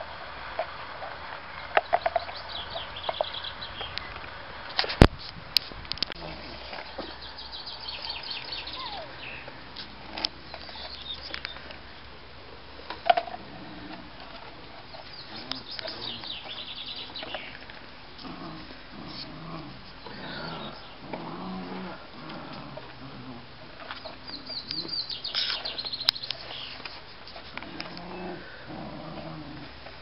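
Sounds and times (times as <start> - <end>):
small birds trilling: 1.5 - 4.2, 6.2 - 11.9, 13.5 - 29.8
puppies playing with plastic jug: 12.8 - 21.3.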